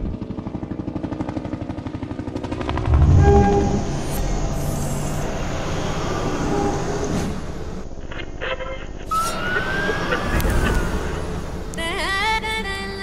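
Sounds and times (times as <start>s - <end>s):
steady rumbling noise: 2.4s - 9.1s
loud low boom: 2.6s - 4.7s.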